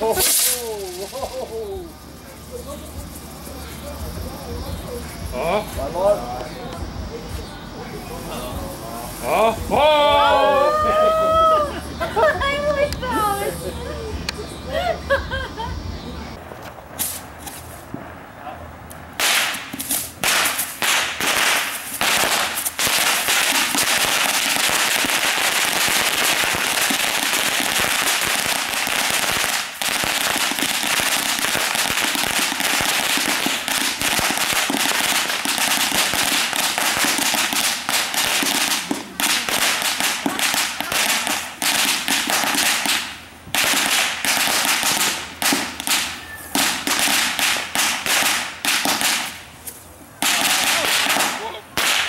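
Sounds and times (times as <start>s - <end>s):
firework crackling and popping: 0.0s - 13.5s, 16.4s - 52.0s.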